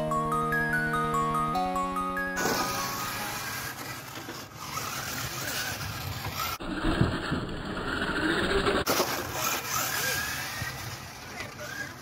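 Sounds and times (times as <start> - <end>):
electric motor whine: 2.4 - 6.6.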